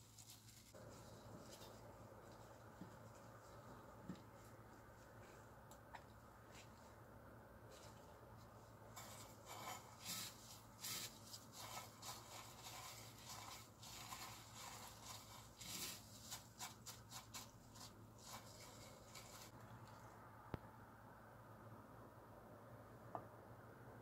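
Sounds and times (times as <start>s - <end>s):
scratchy rustle of breadcrumbs: 0.0s - 5.2s, 7.7s - 19.6s.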